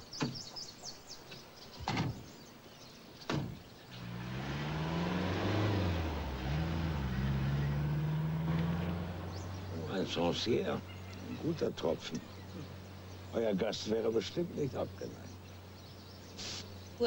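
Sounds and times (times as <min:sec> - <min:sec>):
car engine driving off: 0:03.3 - 0:15.4.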